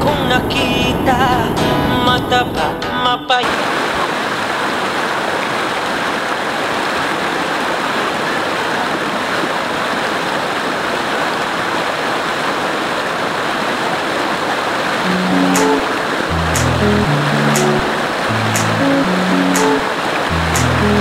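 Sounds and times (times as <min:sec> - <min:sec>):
stream rushing over rocks: 0:03.4 - 0:16.6, 0:17.2 - 0:21.0
music: 0:15.1 - 0:21.0.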